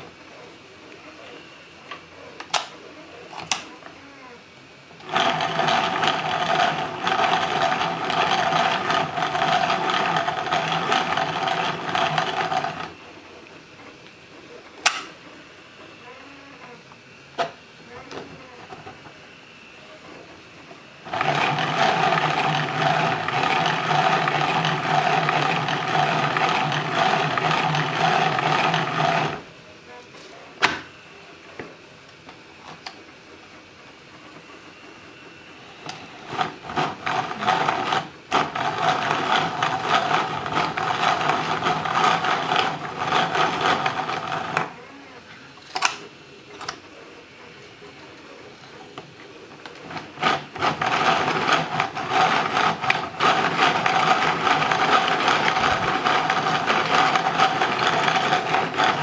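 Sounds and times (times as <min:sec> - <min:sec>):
plastic gears whirring: 0:05.0 - 0:13.0, 0:21.0 - 0:29.5, 0:35.8 - 0:44.8, 0:49.6 - 0:59.0.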